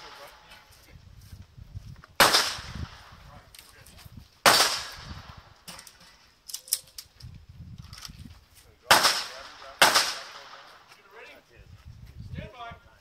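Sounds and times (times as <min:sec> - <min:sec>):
pistol shots with echo: 0:02.2 - 0:03.1, 0:04.4 - 0:05.2, 0:08.9 - 0:10.8.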